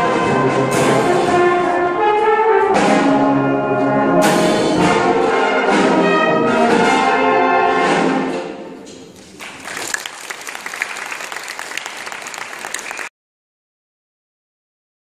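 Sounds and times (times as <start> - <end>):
brass band chord: 0.0 - 8.7
audience applause: 9.2 - 13.1.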